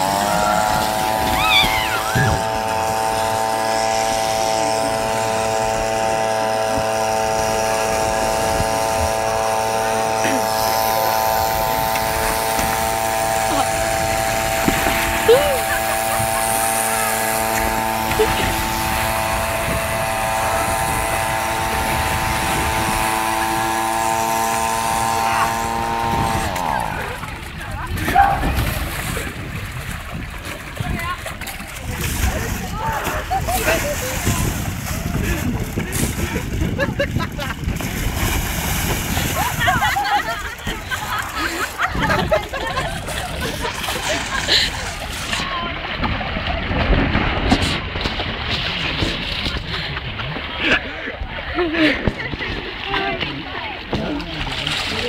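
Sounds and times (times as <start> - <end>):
motor humming: 0.0 - 28.5
steady machine drone: 0.0 - 28.5.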